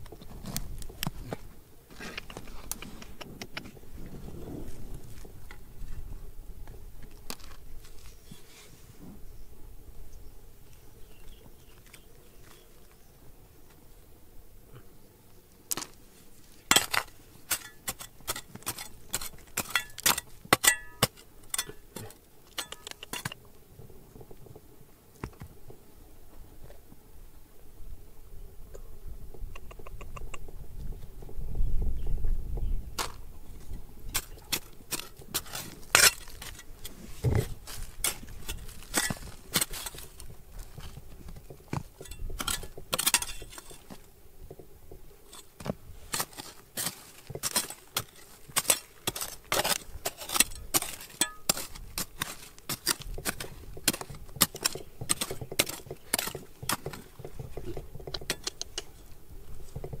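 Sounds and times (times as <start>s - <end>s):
rocks and tools clinking: 16.7s - 23.4s, 33.0s - 44.1s, 45.3s - 58.8s.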